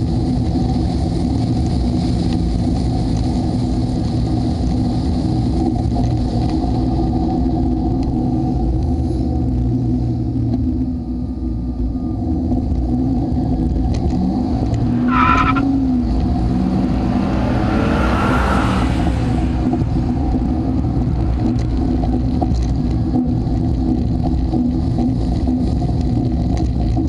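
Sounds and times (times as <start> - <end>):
car engine and road noise: 0.0 - 27.0
rushing noise: 14.1 - 23.7.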